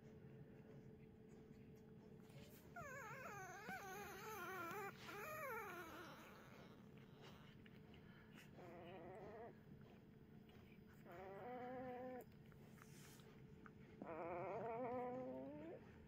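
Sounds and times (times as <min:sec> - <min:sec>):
puppy whimpering: 0:02.4 - 0:07.5, 0:08.3 - 0:10.0, 0:10.7 - 0:16.0.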